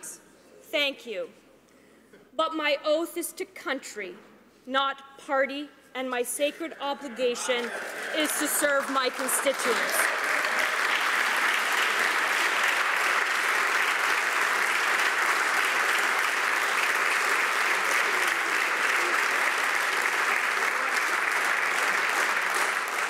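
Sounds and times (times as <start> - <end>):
crowd applause: 7.4 - 23.0.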